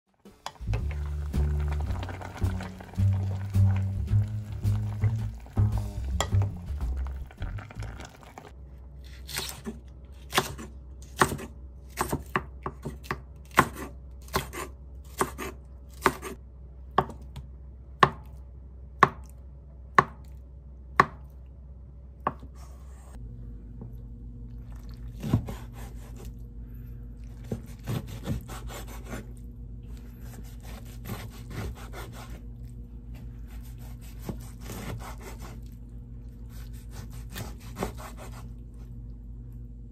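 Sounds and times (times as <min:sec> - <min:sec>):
knife sawing through cabbage: 0:25.2 - 0:26.3, 0:27.5 - 0:29.4, 0:30.2 - 0:32.4, 0:33.5 - 0:35.6, 0:36.5 - 0:38.5.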